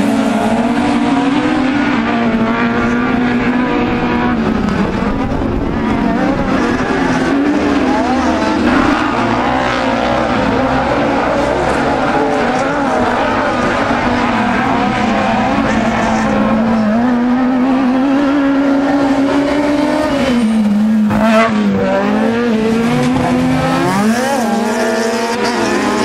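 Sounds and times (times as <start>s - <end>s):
race buggy engines revving: 0.0s - 26.0s.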